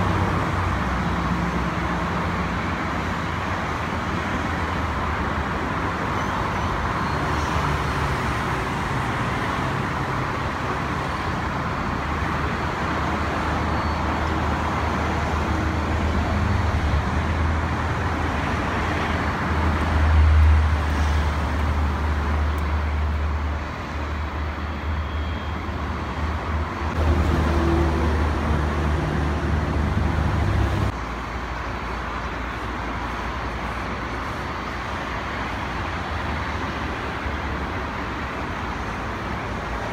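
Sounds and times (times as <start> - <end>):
distant jet engines roaring: 0.0 - 39.9.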